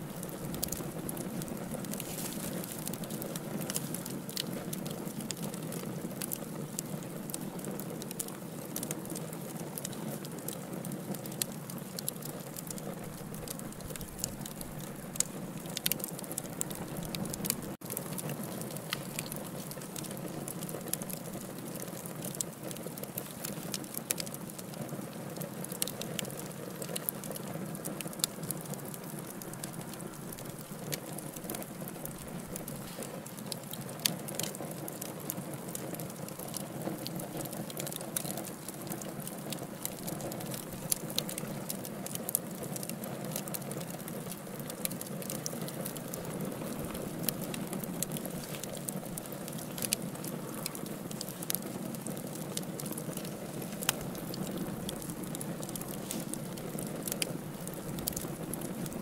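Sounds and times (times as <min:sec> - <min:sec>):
low rush of flame: 0:00.0 - 0:24.3, 0:44.0 - 0:59.0
fire crackling and popping: 0:00.0 - 0:59.0
fire snaps: 0:00.0 - 0:59.0.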